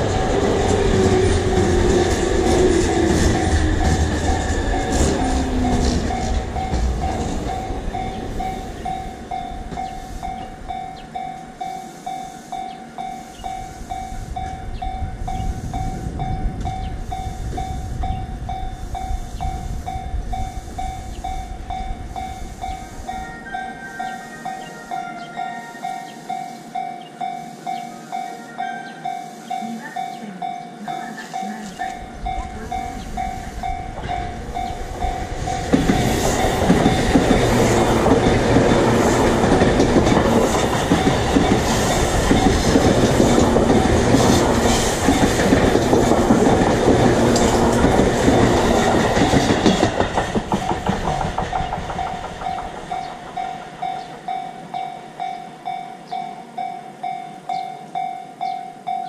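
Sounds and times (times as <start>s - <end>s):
train wheels rumbling and clattering: 0.0s - 23.4s, 29.6s - 59.0s
level crossing bell ringing: 19.9s - 37.6s.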